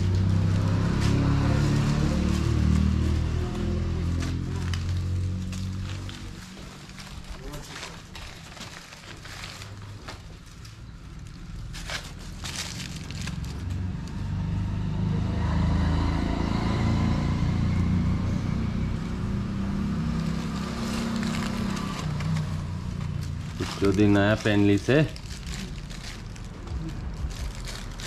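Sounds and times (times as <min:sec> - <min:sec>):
plastic wrapping crinkling: 0:00.0 - 0:14.0, 0:19.4 - 0:28.0
steady low rumble: 0:21.2 - 0:28.0.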